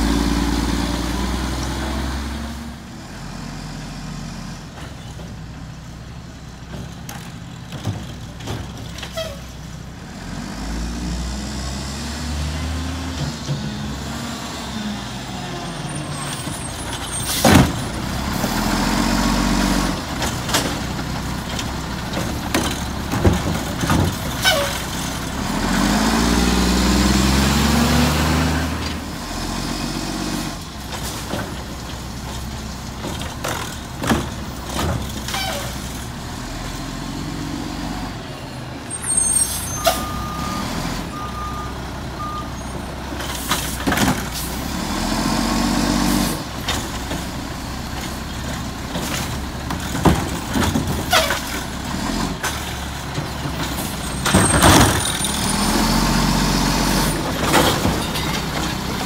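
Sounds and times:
garbage truck diesel engine revving: 0.0s - 4.7s, 9.9s - 59.0s
short beeps: 39.7s - 42.6s.

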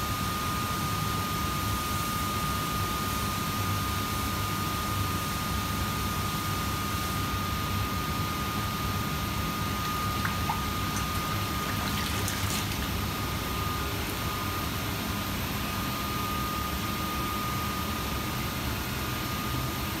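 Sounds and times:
running water: 9.5s - 14.7s.

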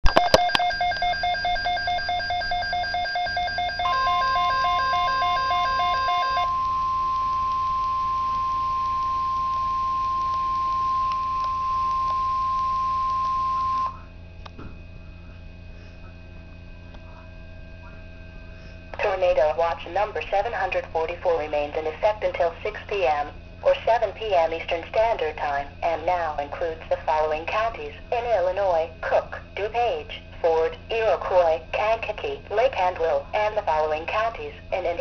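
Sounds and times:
pulsing electronic alarm beep: 0.1s - 14.0s
steady radio warning tone: 0.1s - 14.1s
radio hum and hiss: 3.8s - 35.0s.

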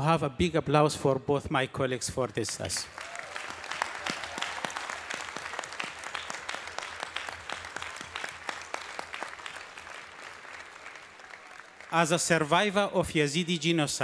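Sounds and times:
audience applause: 2.3s - 12.7s.

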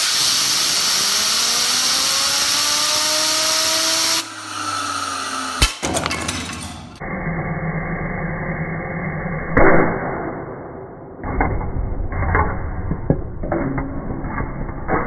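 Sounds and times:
fidget spinner whirring: 0.0s - 5.6s.

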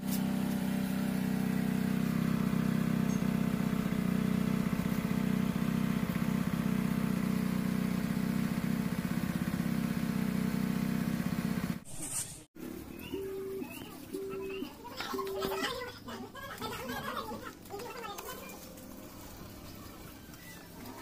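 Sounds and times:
motor droning steadily: 0.0s - 11.8s.

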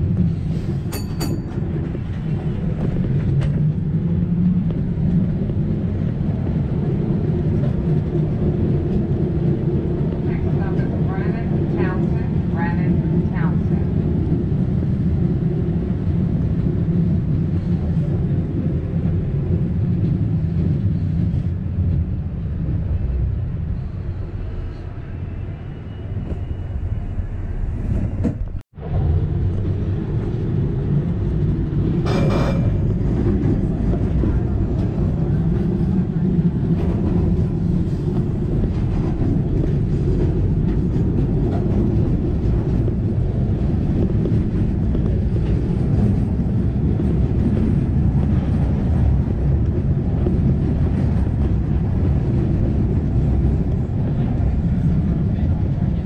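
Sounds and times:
streetcar rumbling on rails: 0.0s - 56.0s.

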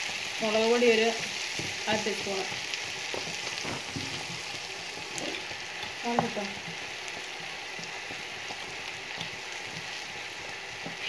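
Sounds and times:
vegetables sizzling in oil: 0.0s - 11.0s
knock on pan: 3.1s - 4.3s.

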